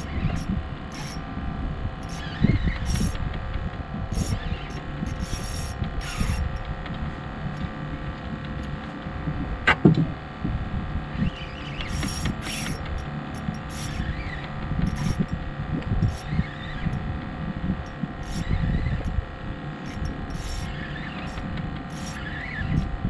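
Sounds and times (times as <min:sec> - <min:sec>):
fishing reel gears clicking: 0:00.0 - 0:01.2, 0:02.0 - 0:03.2, 0:04.1 - 0:06.6, 0:11.3 - 0:15.4, 0:16.0 - 0:17.0, 0:17.8 - 0:19.2, 0:19.8 - 0:23.0
sharp squeak: 0:00.0 - 0:01.2, 0:02.0 - 0:03.2, 0:04.1 - 0:06.6, 0:11.2 - 0:15.4, 0:16.0 - 0:17.0, 0:17.8 - 0:19.2, 0:19.8 - 0:23.0
steady low rumble: 0:00.0 - 0:23.0.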